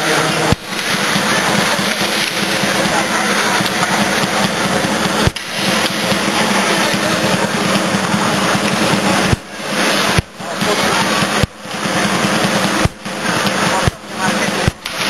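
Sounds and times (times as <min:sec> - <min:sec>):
arena crowd noise: 0:00.0 - 0:15.0
ice hockey play: 0:00.0 - 0:15.0.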